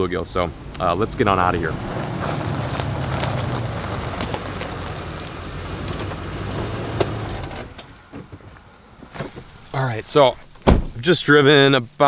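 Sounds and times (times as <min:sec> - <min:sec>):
car engine running: 0:00.8 - 0:07.9.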